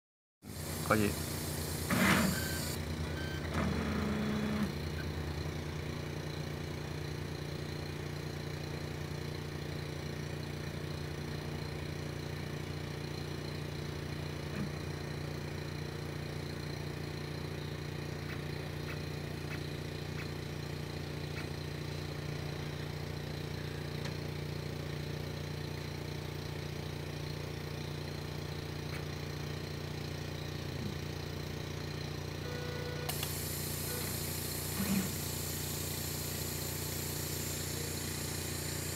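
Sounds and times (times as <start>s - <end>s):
low mechanical hum: 0.4s - 38.9s
short motor whine: 0.5s - 6.6s, 32.2s - 38.9s.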